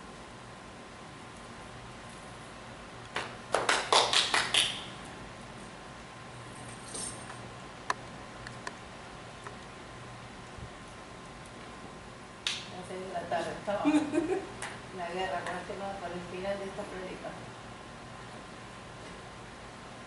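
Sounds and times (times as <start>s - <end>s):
sharp hand claps: 3.1s - 4.9s, 12.4s - 12.7s.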